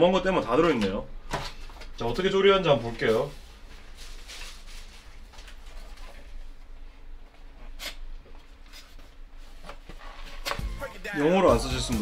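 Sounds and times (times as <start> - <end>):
rustling of plastic packaging: 2.6 - 6.5.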